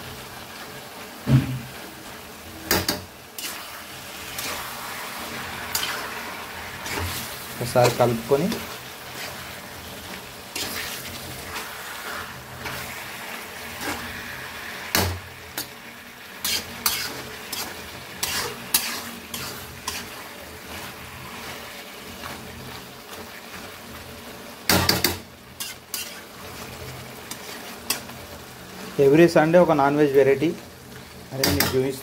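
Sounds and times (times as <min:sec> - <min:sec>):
food sizzling: 0:00.0 - 0:32.0
metal spatula scraping pan: 0:02.7 - 0:09.7, 0:10.5 - 0:15.8, 0:16.4 - 0:23.7, 0:24.7 - 0:28.2.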